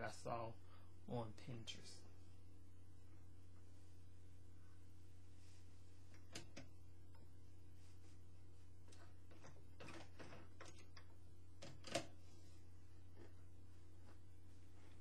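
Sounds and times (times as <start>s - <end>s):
steady low hum: 0.0s - 15.0s
fabric rustling: 4.8s - 6.2s, 7.2s - 10.6s, 12.1s - 15.0s.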